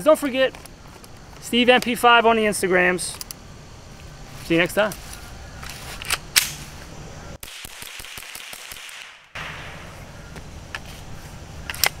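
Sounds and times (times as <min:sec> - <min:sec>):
outdoor background: 0:00.0 - 0:12.0
rifle shot: 0:07.4 - 0:10.0.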